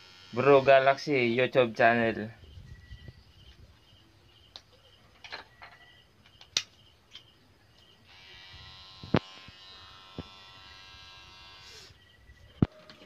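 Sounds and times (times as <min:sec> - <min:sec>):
tattoo machine buzzing: 0:00.0 - 0:00.9, 0:08.0 - 0:12.0.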